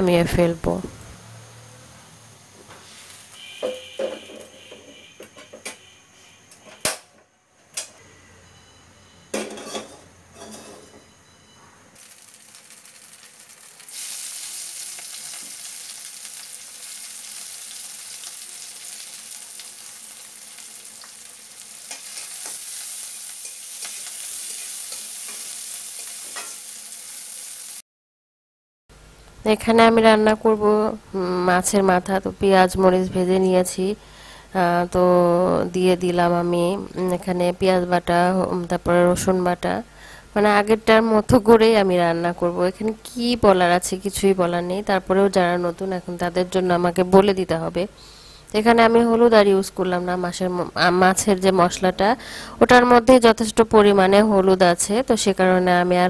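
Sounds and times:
sharp knocks and clinks: 3.6 - 5.8
onions frying in oil: 12.0 - 27.8.

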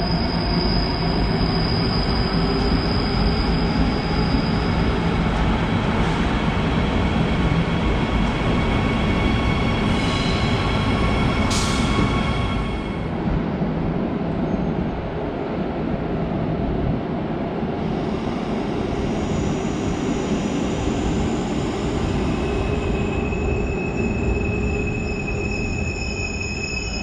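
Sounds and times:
high brake squeal: 0.0 - 5.0, 9.2 - 13.0, 19.2 - 27.0
train rumbling: 0.0 - 27.0.

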